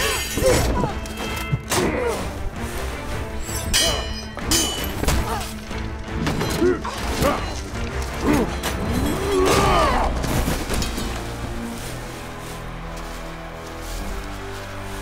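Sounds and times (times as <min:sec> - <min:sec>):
metal blades clashing: 0:00.0 - 0:02.1, 0:03.4 - 0:05.5
film score music: 0:00.0 - 0:15.0.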